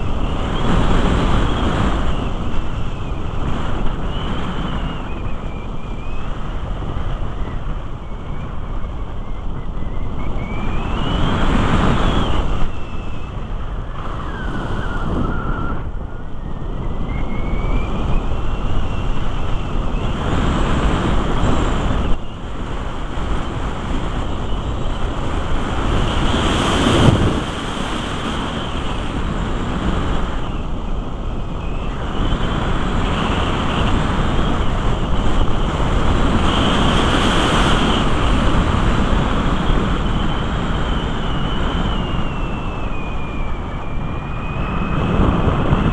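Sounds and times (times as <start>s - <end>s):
rushing wind buffeting microphone: 0.0s - 45.9s
thin whistle sliding in pitch: 40.3s - 45.9s.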